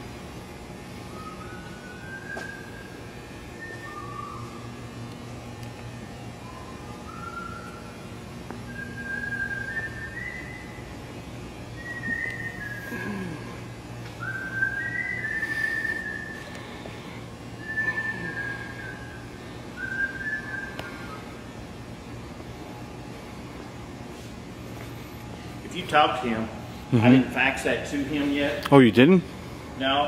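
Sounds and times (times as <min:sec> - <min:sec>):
steady low hum: 0:00.0 - 0:30.0
person whistling a tune: 0:01.1 - 0:02.9, 0:06.4 - 0:07.9, 0:08.7 - 0:10.6, 0:11.8 - 0:13.1, 0:14.2 - 0:16.4, 0:17.6 - 0:19.2, 0:19.8 - 0:21.2.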